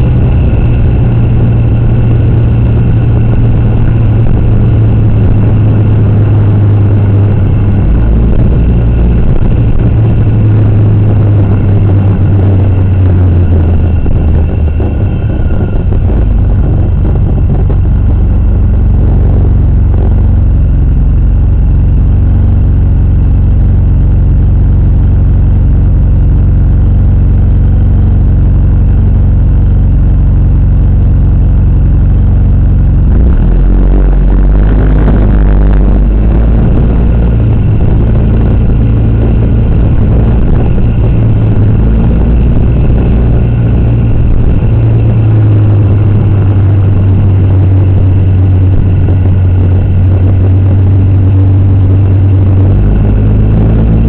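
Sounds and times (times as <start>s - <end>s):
vehicle engine running: 0.0s - 54.0s.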